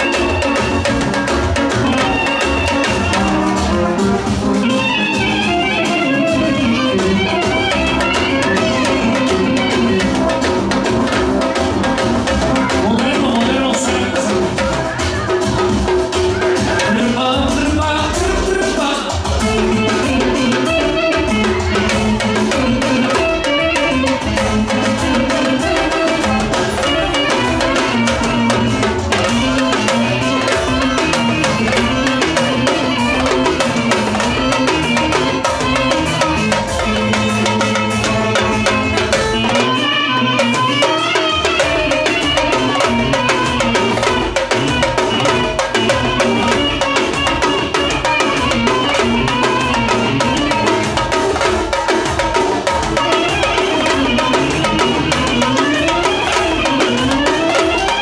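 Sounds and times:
clarinet melody: 0:00.0 - 0:17.2, 0:19.2 - 0:58.0
steady drum beat: 0:00.0 - 0:58.0.

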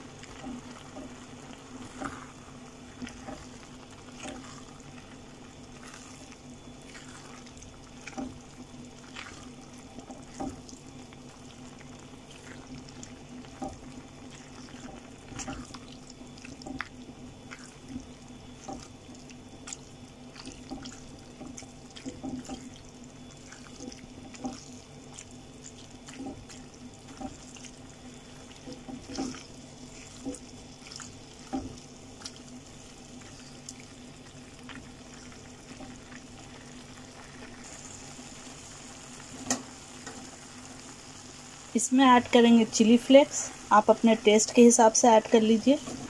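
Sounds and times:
steady low hum: 0:00.0 - 0:46.0
wet squelches of stirred pasta: 0:00.0 - 0:46.0.

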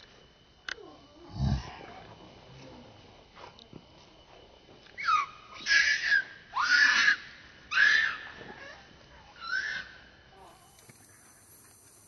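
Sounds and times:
infant monkey screaming: 0:05.0 - 0:08.8, 0:09.4 - 0:10.0.

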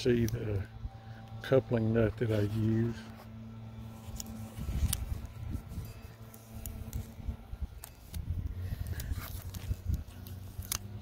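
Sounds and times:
low microphone rumble: 0:02.0 - 0:10.6
fingernail scratching tape: 0:07.8 - 0:11.0.

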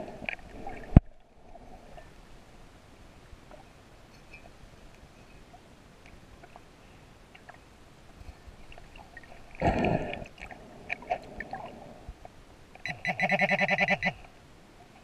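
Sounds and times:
scuba regulator exhaled bubbles: 0:09.6 - 0:12.0
metal detector tone blips: 0:12.8 - 0:14.2.

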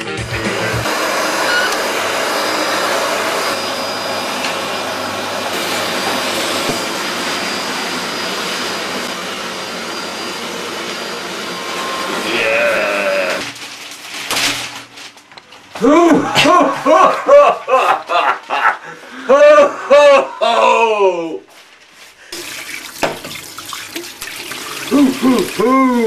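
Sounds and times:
vacuum cleaner running: 0:00.0 - 0:13.7, 0:15.8 - 0:17.9, 0:22.3 - 0:26.0
person crying out: 0:12.2 - 0:13.5, 0:15.8 - 0:17.8, 0:19.1 - 0:21.5, 0:24.9 - 0:26.0.

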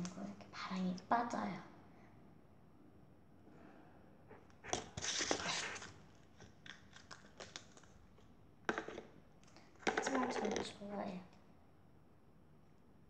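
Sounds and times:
plastic tub crinkling: 0:04.8 - 0:09.1.

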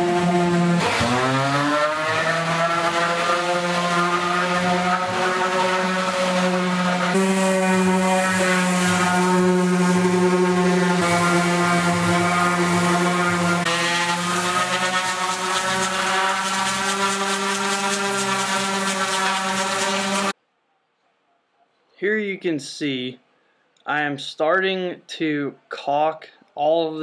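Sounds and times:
orbital sander running: 0:00.0 - 0:20.4.

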